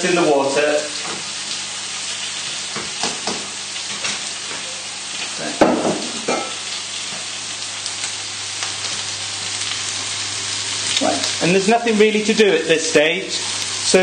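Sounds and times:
steaks sizzling in a frying pan: 0.0s - 14.0s
knocks against a pan: 2.8s - 3.5s, 5.6s - 6.5s.

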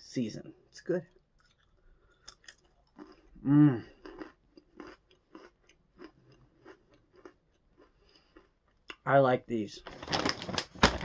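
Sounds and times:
pretzel crunching while chewed: 1.1s - 9.0s.

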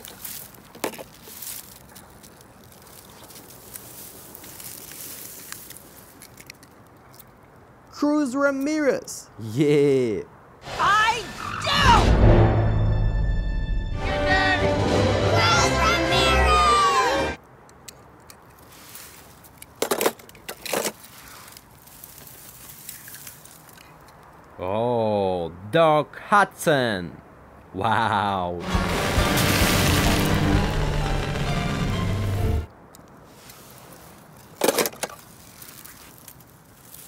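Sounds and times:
sharp crackles: 0.0s - 7.5s, 18.3s - 24.6s, 28.6s - 37.0s
grass and dry leaves rustling: 0.0s - 7.9s, 18.0s - 24.6s, 32.7s - 37.0s.

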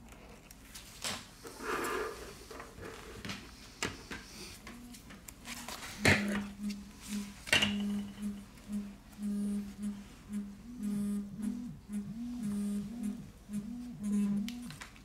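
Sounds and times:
low pulsing hum: 6.0s - 14.8s.

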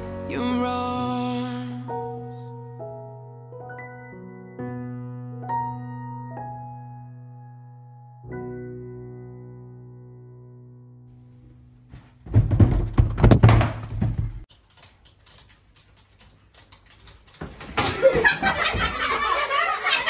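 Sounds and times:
rustling: 11.3s - 17.8s
thuds and knocks: 11.9s - 14.4s
keyboard typing: 14.5s - 17.6s.

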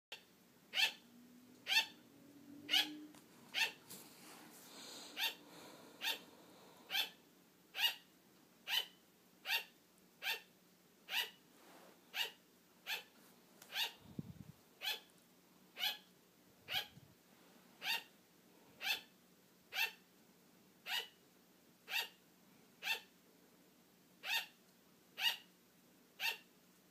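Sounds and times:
sugar glider barking: 0.1s - 3.9s, 4.7s - 11.4s, 12.1s - 14.0s, 14.8s - 15.1s, 15.7s - 17.0s, 17.8s - 18.1s, 18.8s - 20.1s, 20.8s - 21.2s, 21.8s - 22.2s, 22.8s - 23.1s, 24.2s - 25.5s, 26.2s - 26.5s.

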